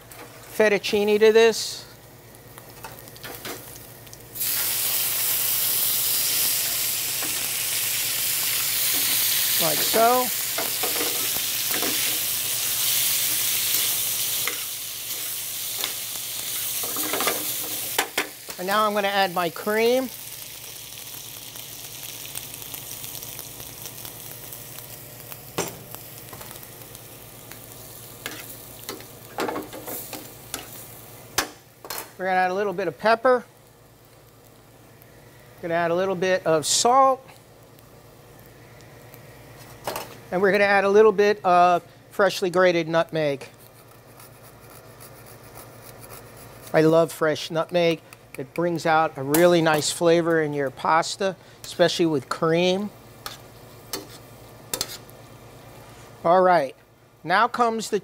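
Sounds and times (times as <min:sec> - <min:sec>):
pasta sizzling in hot pan: 0:01.9 - 0:40.9, 0:49.1 - 0:56.3
metal tongs scraping a pan: 0:53.2 - 0:55.1.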